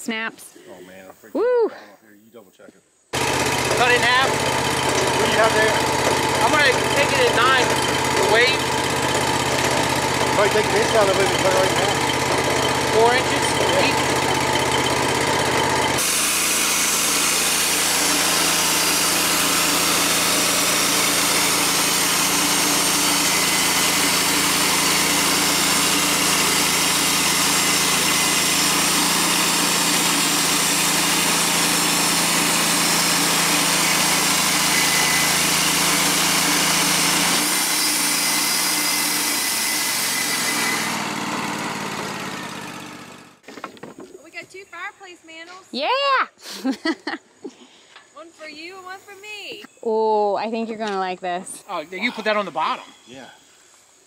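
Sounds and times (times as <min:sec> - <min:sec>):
sawmill engine at high revs: 0:03.1 - 0:43.4.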